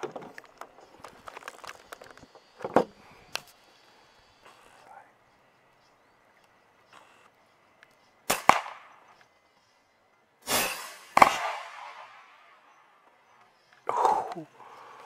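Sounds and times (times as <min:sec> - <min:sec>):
air rifle shots: 0:08.2 - 0:09.2, 0:10.4 - 0:12.7.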